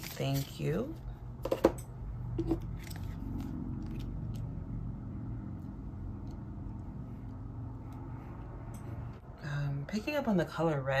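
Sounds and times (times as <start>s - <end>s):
low hum: 1.9s - 9.8s.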